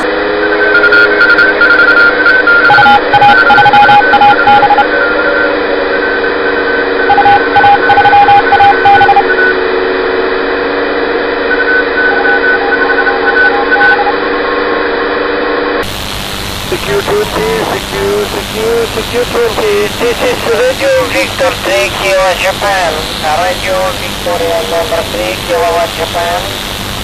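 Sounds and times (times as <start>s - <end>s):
morse code whistle: 0.0s - 9.6s, 11.4s - 14.9s
radio band noise hiss: 15.8s - 27.0s.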